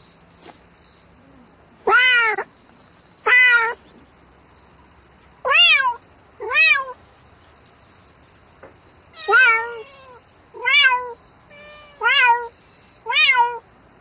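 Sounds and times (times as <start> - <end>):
cat meowing: 1.8 - 2.5, 3.2 - 3.8, 5.4 - 7.0, 9.1 - 13.6.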